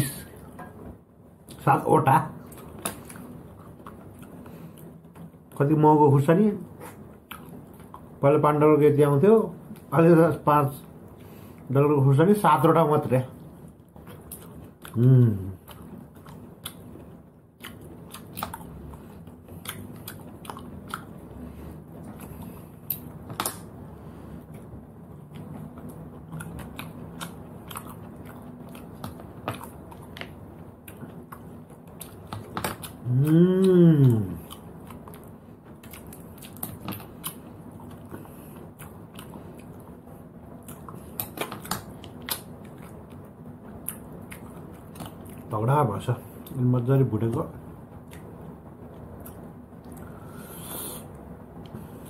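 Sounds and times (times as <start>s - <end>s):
chewing: 2.4s - 5.6s, 6.8s - 8.2s, 13.4s - 23.7s, 24.4s - 45.5s.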